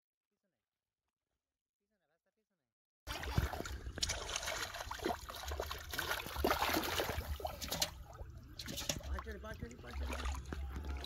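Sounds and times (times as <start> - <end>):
water splashing and sloshing: 3.1 - 11.0.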